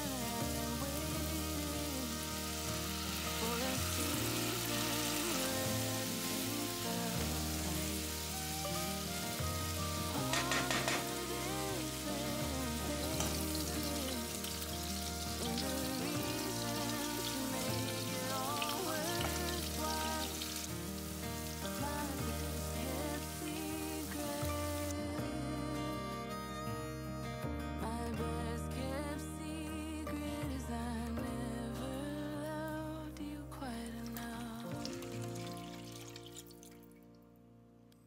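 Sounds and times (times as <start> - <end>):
meat sizzling in a pan: 0.0 - 24.9
background music: 0.0 - 38.0.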